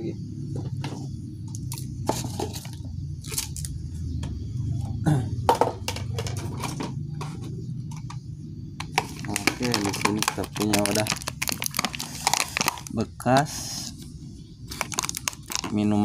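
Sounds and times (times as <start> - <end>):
steady low hum: 0.0 - 16.0
plastic containers crackling: 8.8 - 13.0, 14.6 - 16.0.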